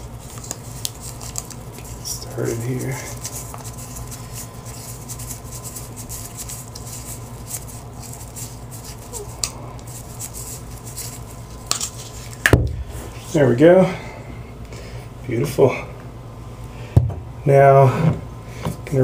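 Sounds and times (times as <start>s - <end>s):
tape crinkling and scratching: 0.0s - 12.5s.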